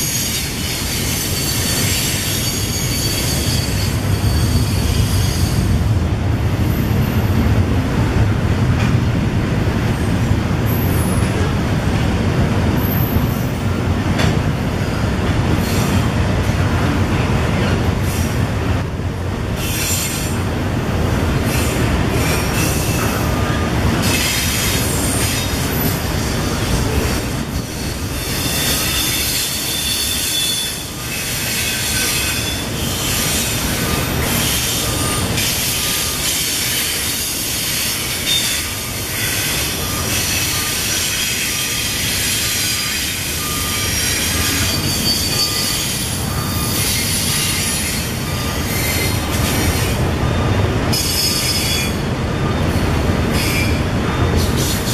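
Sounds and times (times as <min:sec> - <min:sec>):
high wheel squeal: 0:00.0 - 0:05.8, 0:21.5 - 0:54.9
steel wheels rumbling on rails: 0:00.0 - 0:54.9.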